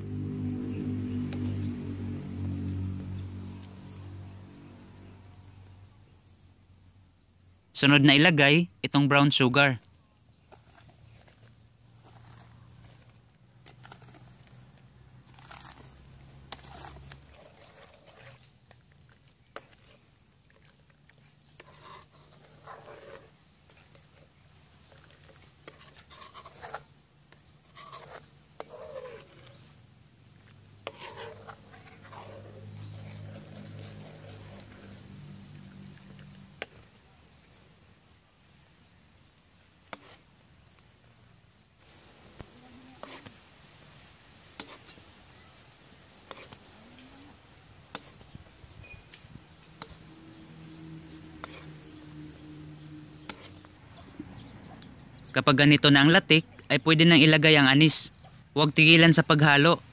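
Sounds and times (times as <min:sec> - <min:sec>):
spoon scraping metal bowl: 0:10.5 - 0:29.7, 0:30.4 - 0:36.8, 0:39.9 - 0:40.3, 0:43.0 - 0:43.3, 0:46.2 - 0:47.0, 0:49.8 - 0:54.0.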